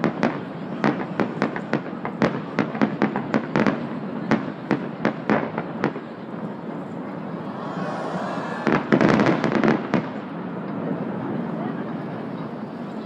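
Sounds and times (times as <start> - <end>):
fireworks crackling: 8.6 - 10.4.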